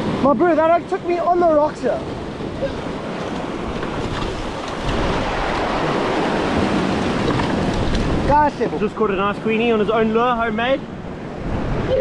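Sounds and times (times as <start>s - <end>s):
surf washing over rocks: 0.0s - 12.0s.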